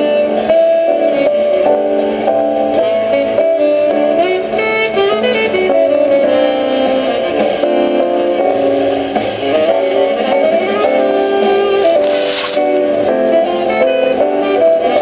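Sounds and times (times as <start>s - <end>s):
instrumental music: 0.0s - 15.0s.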